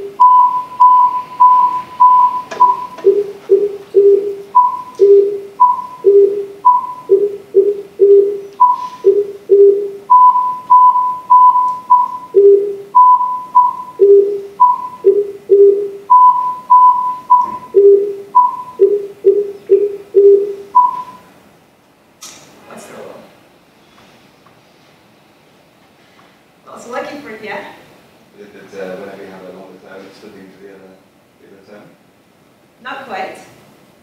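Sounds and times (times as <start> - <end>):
low and high beeps: 0.0 - 21.3.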